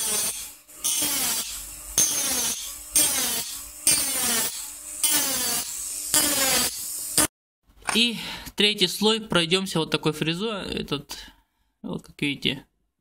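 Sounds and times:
rotary tool burr cutting metal: 0:00.0 - 0:07.3.

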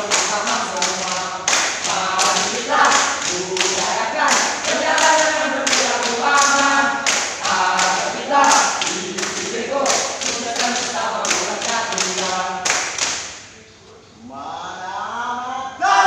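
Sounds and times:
group chanting a team cheer: 0:00.0 - 0:12.8
rhythmic claps or stomps: 0:00.0 - 0:13.5.

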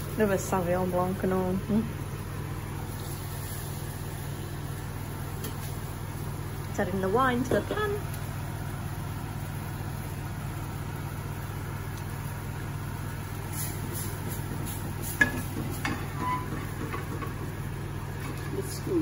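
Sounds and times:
low kitchen hum: 0:00.0 - 0:19.0
frying pan knocking on hob: 0:15.2 - 0:17.6.

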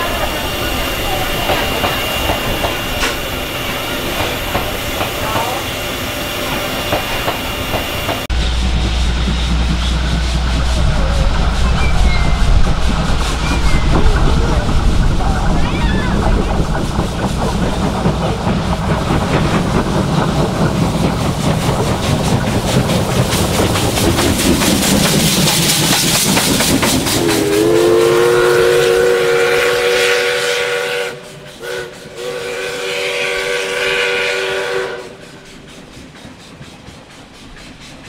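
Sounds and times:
steam locomotive running: 0:00.0 - 0:38.0
steam whistle blasts: 0:27.2 - 0:35.3.

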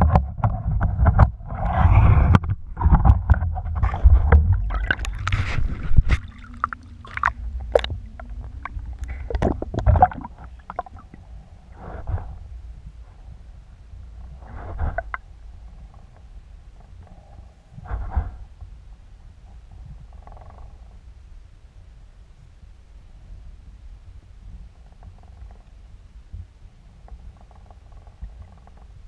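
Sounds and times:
water sloshing and gurgling: 0:00.0 - 0:16.2
low rumble: 0:00.0 - 0:22.6.

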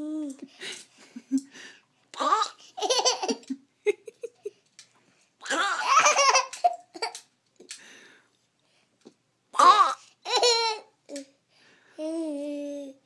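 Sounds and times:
toddler laughing: 0:02.2 - 0:03.6, 0:05.4 - 0:07.2, 0:09.6 - 0:10.9
toddler giggling: 0:02.2 - 0:04.6.

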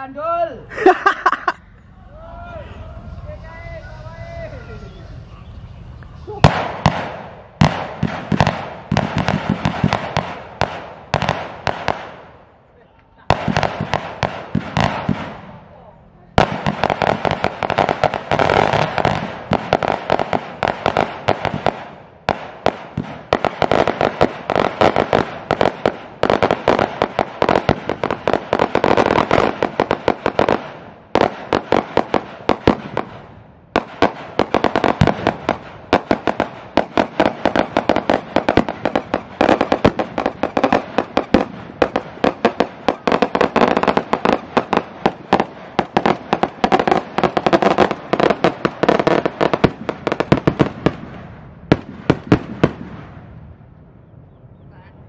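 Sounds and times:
firecrackers crackling: 0:00.0 - 0:53.8.

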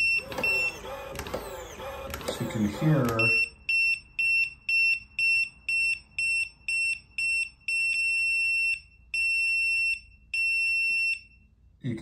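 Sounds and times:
longer keypad beeps: 0:00.0 - 0:00.9, 0:02.9 - 0:11.4
short high keypad beeps: 0:03.1 - 0:04.4.

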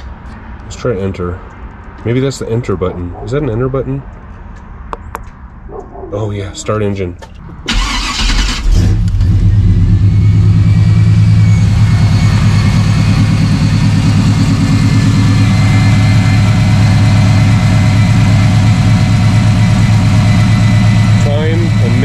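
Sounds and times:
engine idling: 0:07.7 - 0:22.0.

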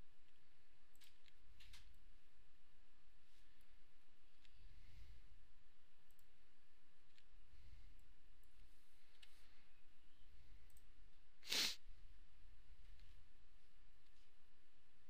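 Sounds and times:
low room hum: 0:00.0 - 0:15.0
short puff of noise: 0:11.5 - 0:11.8.

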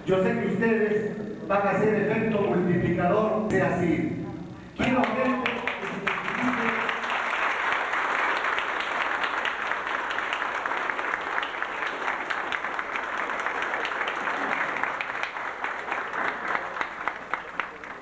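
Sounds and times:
audience applauding: 0:04.8 - 0:18.0.

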